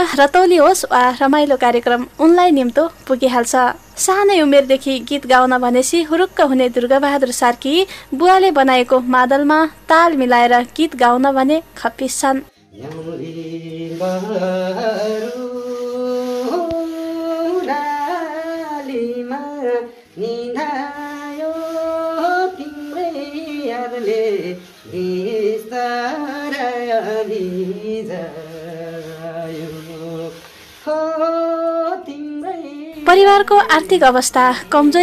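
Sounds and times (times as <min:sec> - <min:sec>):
man singing unaccompanied: 0:12.8 - 0:33.9.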